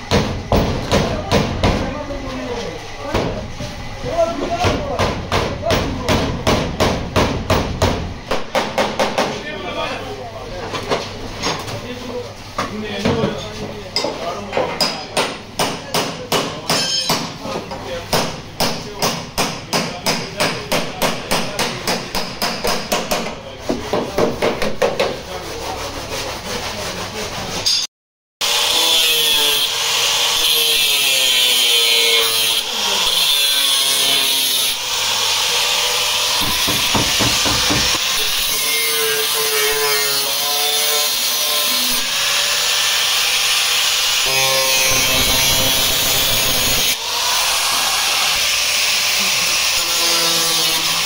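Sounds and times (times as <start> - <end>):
hand tool scraping metal: 25.4 - 27.9
angle grinder cutting sheet metal: 27.6 - 51.0.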